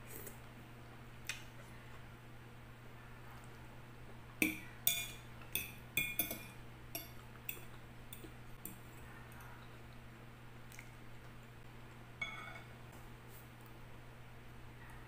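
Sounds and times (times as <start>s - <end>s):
fork clinking on glass bowl: 4.4s - 7.7s, 12.2s - 12.7s.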